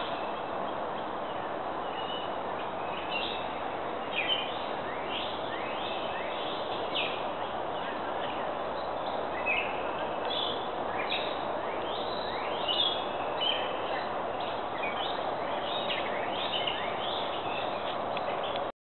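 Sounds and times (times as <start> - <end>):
songbirds chirping: 0.0 - 18.7
steady background hiss: 0.0 - 18.7.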